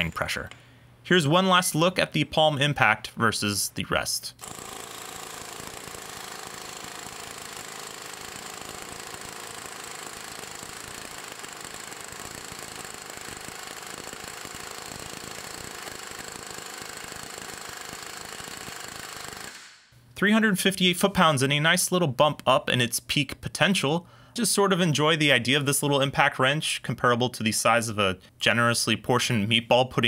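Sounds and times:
impact wrench hammering: 4.4 - 19.9.

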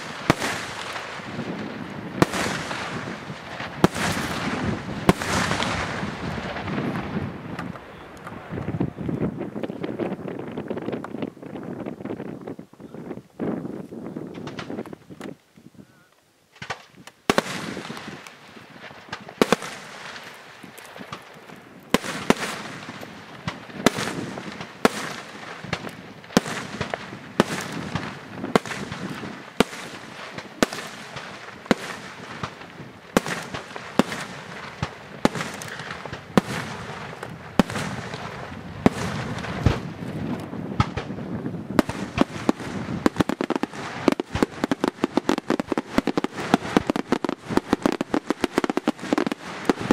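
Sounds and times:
firework shells bursting: 16.5 - 49.9.

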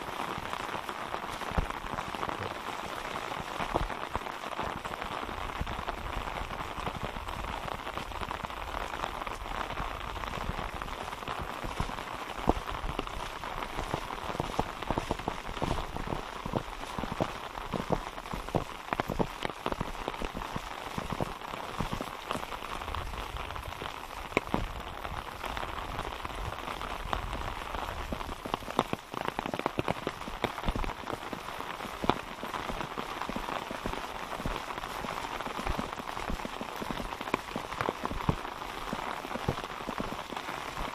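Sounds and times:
rain pattering: 0.0 - 40.9
sharp drops and pops: 24.2 - 24.8, 28.1 - 31.0.

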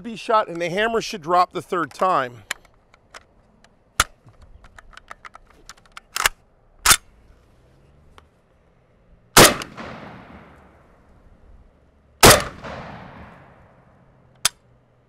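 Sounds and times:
rifle handling clicks: 1.8 - 7.1
rifle shot with echo: 9.4 - 10.8, 12.2 - 13.9.

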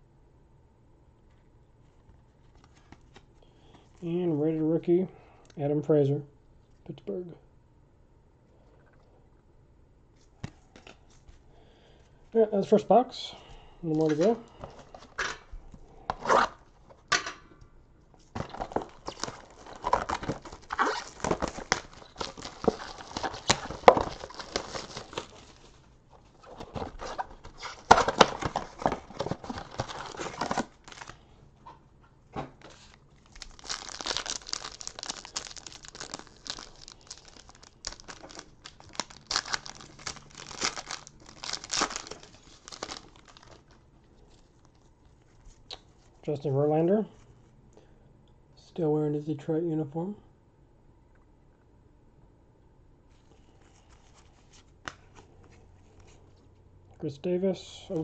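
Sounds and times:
plastic shrink-wrap crinkling: 18.2 - 31.2, 32.6 - 45.7
cardboard tearing: 18.4 - 25.7, 26.4 - 31.1, 32.8 - 43.6.

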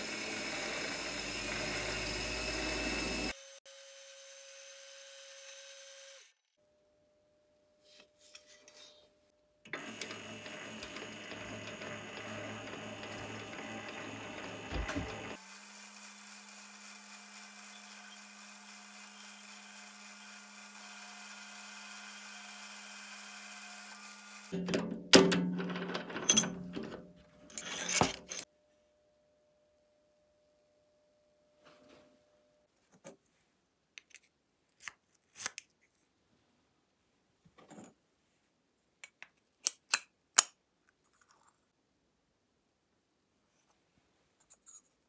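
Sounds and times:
lathe cutting metal: 0.0 - 3.3, 9.7 - 16.2
lathe humming: 0.0 - 3.3, 9.7 - 24.5
knocks and clatters: 10.1 - 15.4, 24.6 - 28.4.

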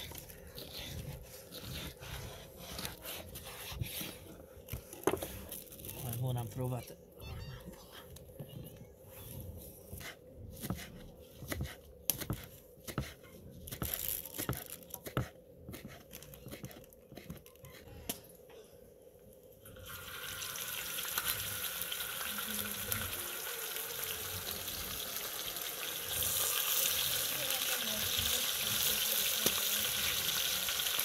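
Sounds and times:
knife chopping on wooden board: 10.0 - 16.0
steaks sizzling in oil: 19.8 - 31.0.

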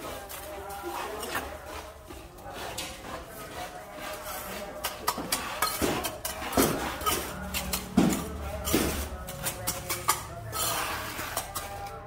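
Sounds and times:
scraping and clinking on concrete: 2.6 - 12.0.

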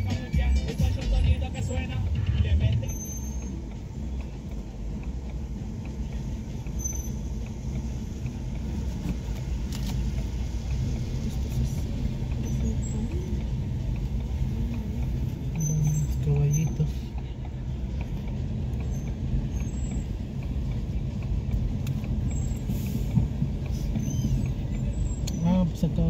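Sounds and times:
car engine and tyres rumbling: 0.0 - 26.0
faint high squeaks: 23.8 - 25.0.

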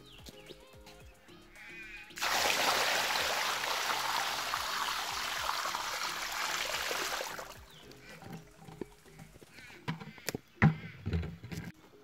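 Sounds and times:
water pouring into rock pool: 2.2 - 7.8.

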